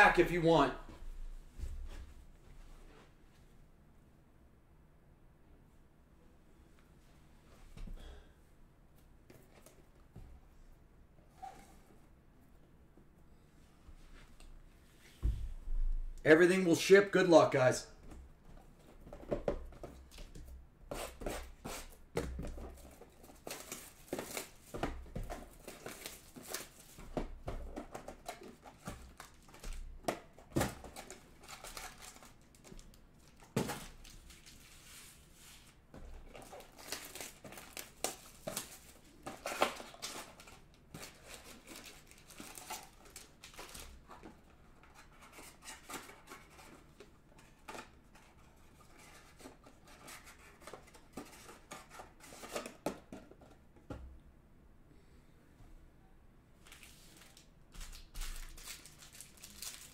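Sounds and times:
cardboard and foil packs rustling: 22.5s - 52.8s, 56.6s - 59.9s
plastic wrap crinkling and tearing: 30.7s - 34.7s, 36.3s - 44.1s, 56.7s - 59.9s.

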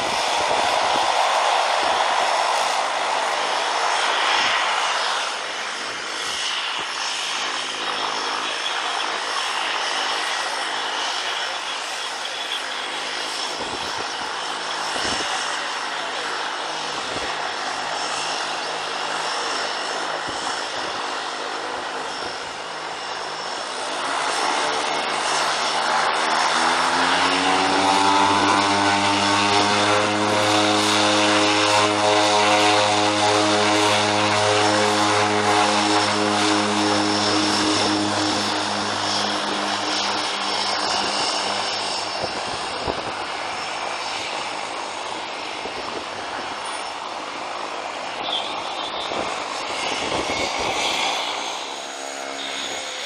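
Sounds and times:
turboprop engines powering up: 23.8s - 43.2s.

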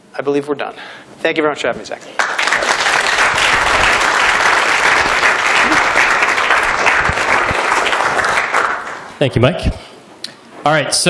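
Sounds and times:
audience applauding: 2.2s - 9.1s.

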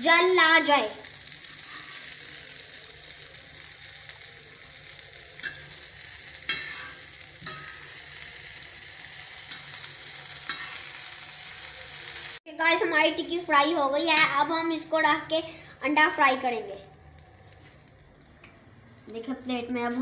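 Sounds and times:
patty sizzling on a griddle: 0.0s - 20.0s
metal spatula scraping pan: 1.4s - 2.4s, 5.4s - 8.3s, 9.3s - 11.2s.

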